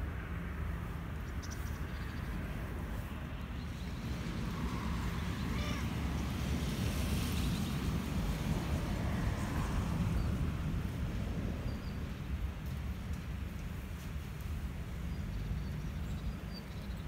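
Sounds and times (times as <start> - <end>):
cat meowing: 5.5 - 5.9.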